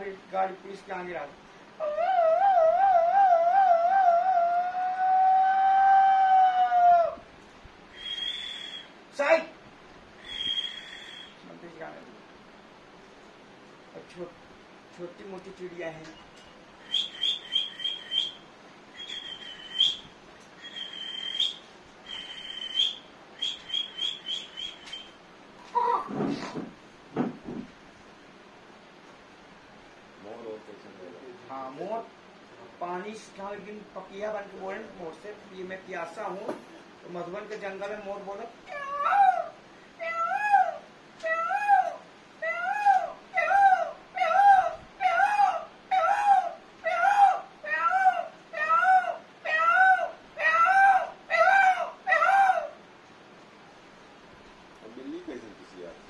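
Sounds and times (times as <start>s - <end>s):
man imitating peacock calls: 1.8s - 7.3s, 16.8s - 18.4s, 38.6s - 52.8s
man whistling bird chirps: 7.9s - 8.9s, 10.2s - 11.4s, 16.2s - 25.2s.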